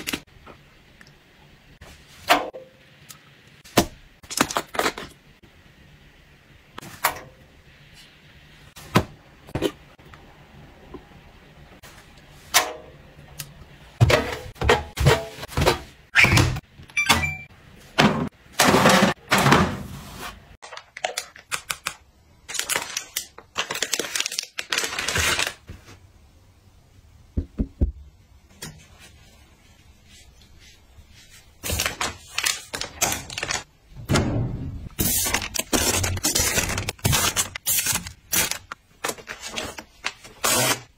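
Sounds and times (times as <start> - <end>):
packets rustling: 35.0 - 40.9.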